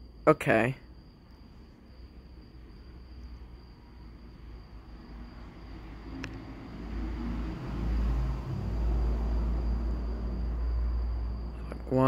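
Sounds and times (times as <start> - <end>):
distant thunder rumble: 5.1 - 11.6.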